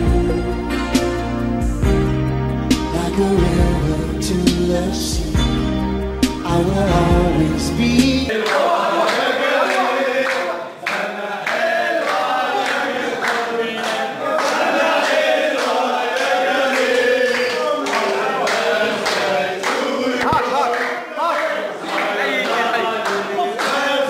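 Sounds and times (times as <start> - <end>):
men singing a chant: 2.9 - 5.4, 6.5 - 24.0
hand clapping: 8.3 - 24.0.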